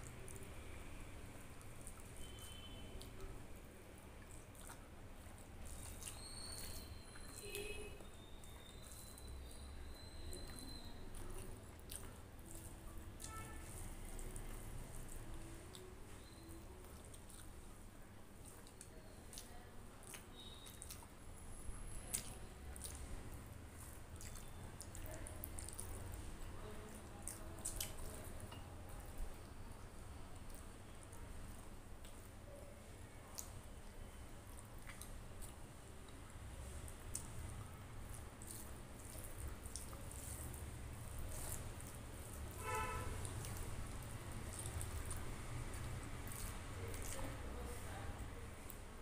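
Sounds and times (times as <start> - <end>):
fingers squishing rice: 0.0 - 21.2, 33.2 - 48.3
chewing: 0.0 - 49.0.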